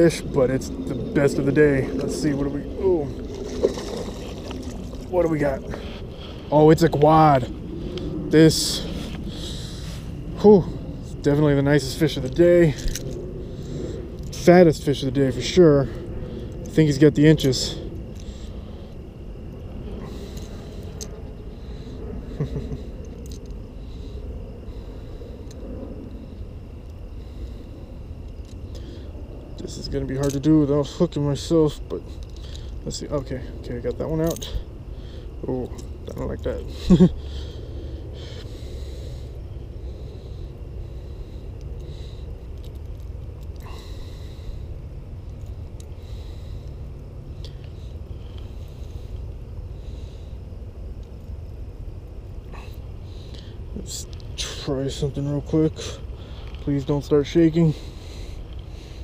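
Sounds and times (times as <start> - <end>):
faint high insect drone: 0.0 - 59.0
low steady rumble: 0.0 - 59.0
handling noise with clicks: 12.2 - 13.3, 17.4 - 21.3, 22.4 - 23.7, 30.1 - 30.5, 41.5 - 43.7.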